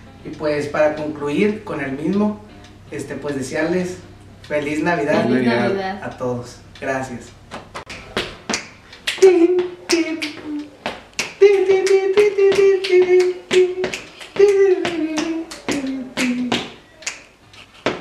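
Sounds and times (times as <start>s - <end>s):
person singing a slow ballad: 9.2s - 16.8s.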